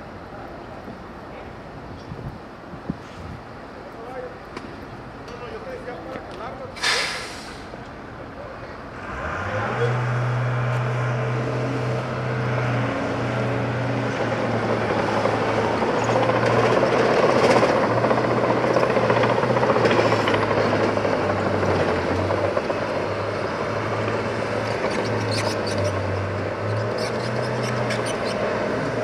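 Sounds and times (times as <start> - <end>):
heavy diesel machinery running: 6.8 - 29.0.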